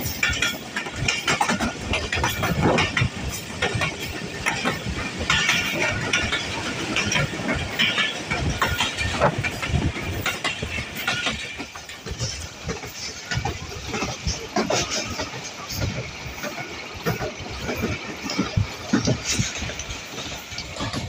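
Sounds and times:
continuous train rumble: 0:00.0 - 0:21.0
train wheels clattering on rails: 0:00.0 - 0:21.0.

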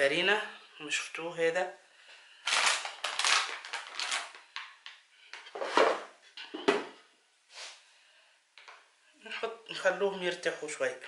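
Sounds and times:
metal tray scraping on countertop: 0:05.5 - 0:06.8.

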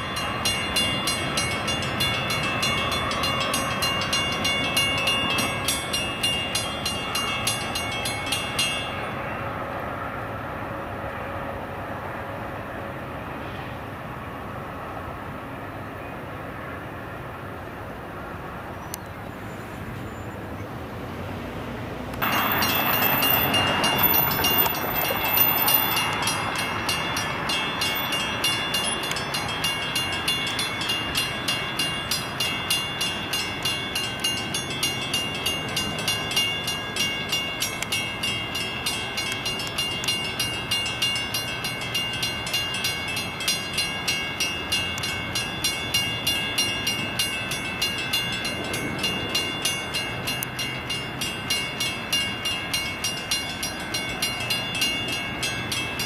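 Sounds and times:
crossing warning bells ringing: 0:00.0 - 0:18.6, 0:22.2 - 0:56.0
rush of noise: 0:19.8 - 0:29.6.

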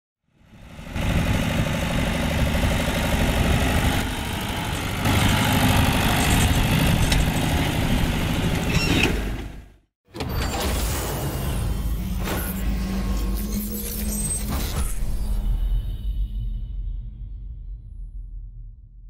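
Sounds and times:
tractor diesel engine running: 0:00.3 - 0:09.8.

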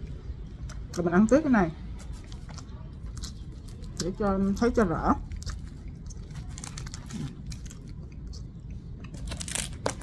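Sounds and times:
crusty bread crunching: 0:02.0 - 0:10.0.

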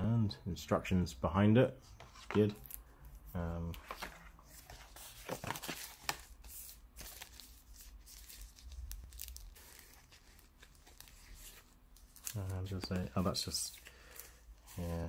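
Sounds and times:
packaging rustling and crinkling: 0:03.8 - 0:15.0
wrapper tearing open: 0:08.2 - 0:10.2.

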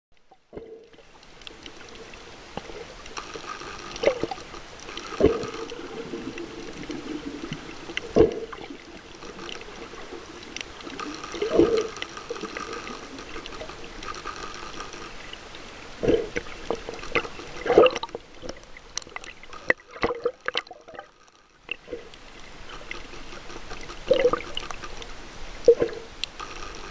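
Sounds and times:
faint underwater clicks: 0:00.2 - 0:26.9
muffled underwater hiss: 0:00.5 - 0:26.9.

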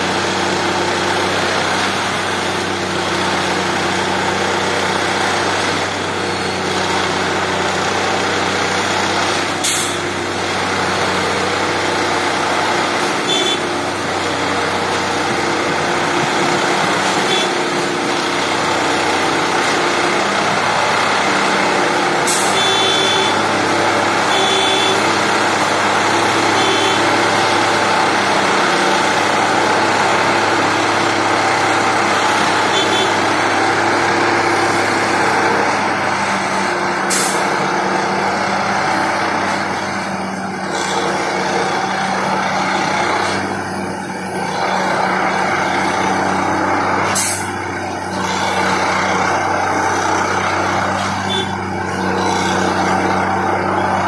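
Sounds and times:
diesel engine humming: 0:00.0 - 0:54.0
loud machinery hiss: 0:09.6 - 0:10.1, 0:22.1 - 0:22.7, 0:37.0 - 0:37.6.

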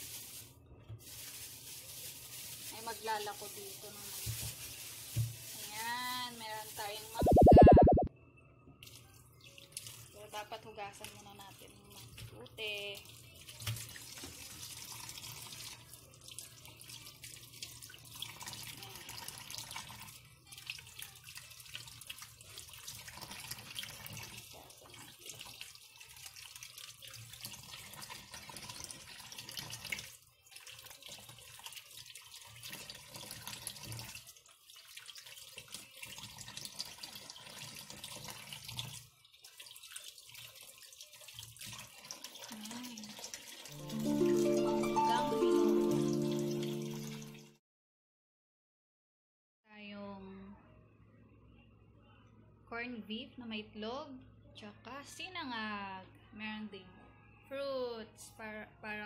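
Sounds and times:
tap water splashing into sink: 0:13.5 - 0:15.7, 0:20.6 - 0:43.7.

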